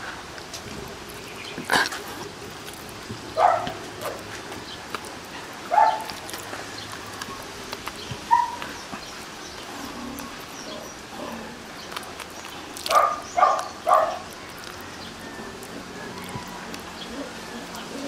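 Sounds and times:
dog barking: 3.4 - 4.2, 5.7 - 6.1, 8.3 - 8.6, 12.9 - 14.2.

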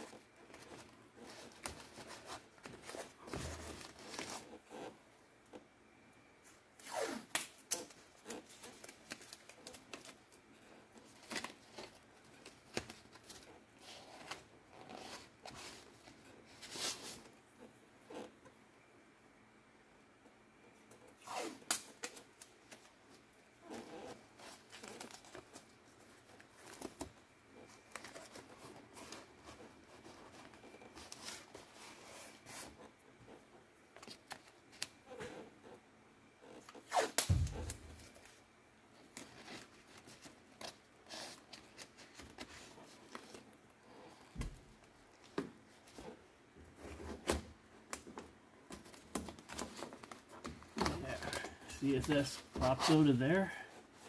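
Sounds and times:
cardboard rustling and crinkling: 0.0 - 5.6, 22.1 - 35.2, 36.6 - 43.5, 44.3 - 54.0
loud thump: 37.3 - 38.0.

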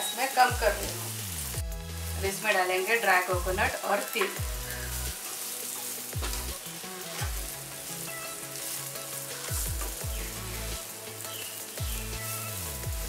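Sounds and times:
vegetables sizzling in a pan: 0.0 - 13.0
spatula stirring in a pan: 4.0 - 12.6.

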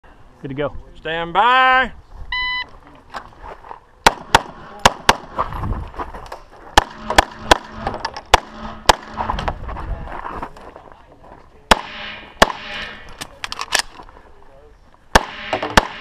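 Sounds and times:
pistol firing: 4.0 - 5.4, 6.8 - 9.3, 11.7 - 13.9, 15.1 - 16.0.

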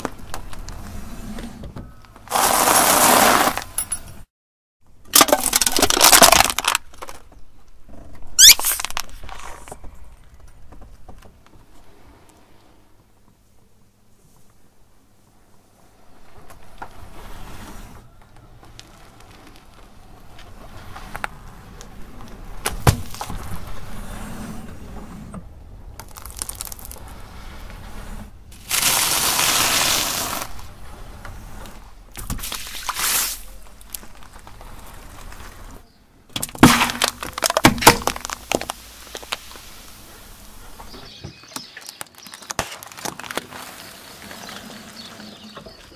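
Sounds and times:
can crushed under tyre: 2.3 - 3.8, 5.0 - 7.3, 8.4 - 9.4, 22.6 - 23.7, 26.0 - 27.0, 28.5 - 30.7, 32.1 - 35.6, 36.3 - 39.9
paper packet popping: 5.1 - 7.2, 8.4 - 9.4, 26.0 - 27.0, 28.6 - 30.5, 36.4 - 39.7, 41.6 - 44.0
crackling: 15.9 - 24.4, 25.6 - 45.9.

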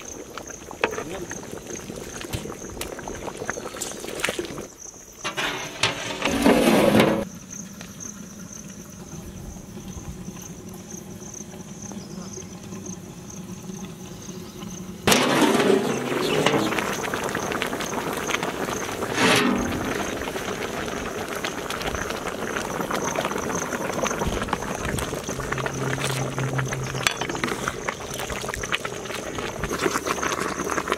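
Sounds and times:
pot boiling and bubbling: 0.0 - 30.9.

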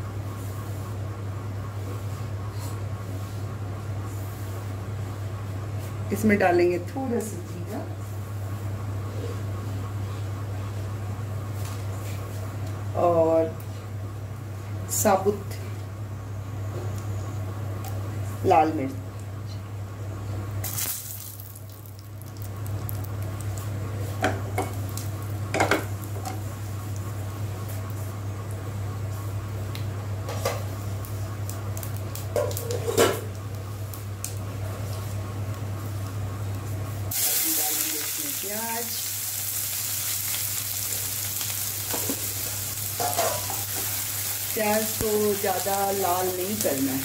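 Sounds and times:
low steady hum: 0.0 - 47.0
onions sizzling in hot oil: 20.6 - 23.5, 37.1 - 47.0
light sizzle of oil: 20.6 - 47.0.

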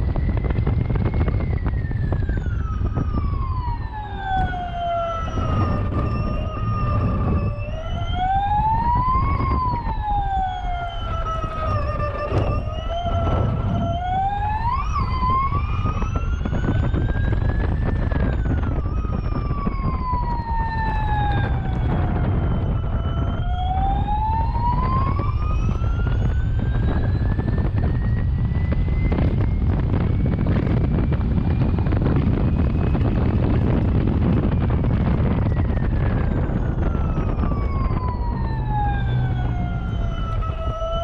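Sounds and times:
wind and road noise rumble: 0.0 - 41.0
electric race car whining: 9.2 - 30.7.

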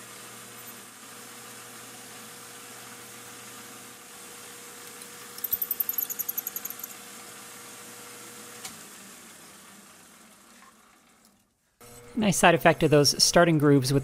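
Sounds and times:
drill rattling ticks: 5.4 - 6.9
lathe humming: 11.8 - 14.0.

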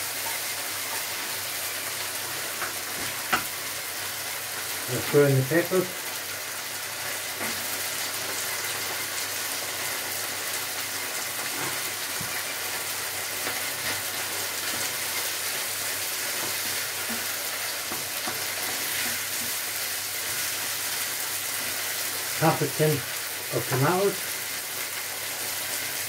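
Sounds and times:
meat sizzling in a frying pan: 0.0 - 26.0
wooden spoon scraping a pan: 11.4 - 12.4, 13.4 - 20.6.

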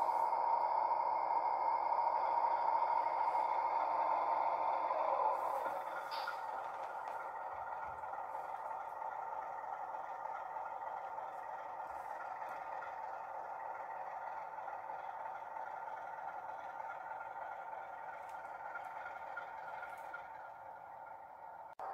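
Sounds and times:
diesel engine sound from speaker: 0.0 - 21.9
faint clicks: 5.5 - 9.4.

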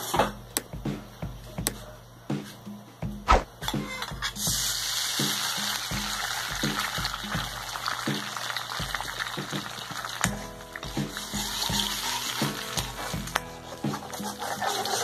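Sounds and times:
sharp tap: 3.3 - 3.8
egg sizzling in hot oil: 4.2 - 15.0.

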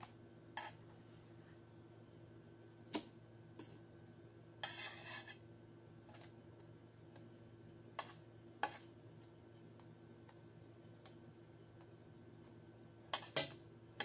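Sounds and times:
low steady hum: 0.0 - 14.0
metal spatula scraping frying pan: 4.6 - 5.4, 13.1 - 13.6.

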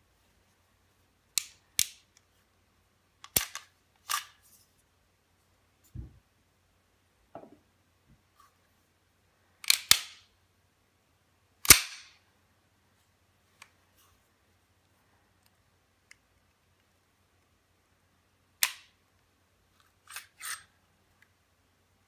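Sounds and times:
pistol slide metallic clacks: 3.2 - 4.4, 20.0 - 20.7.

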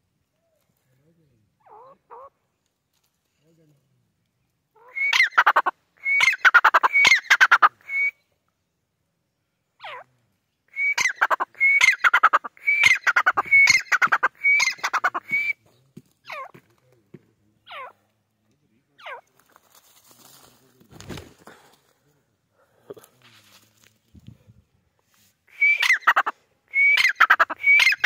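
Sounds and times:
bird calling whistle and rattle: 4.8 - 8.2, 10.7 - 15.6, 25.5 - 28.0.

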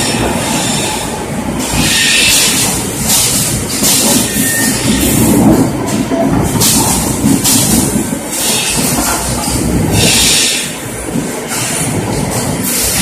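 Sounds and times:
machinery rattling clatter: 0.0 - 13.0.

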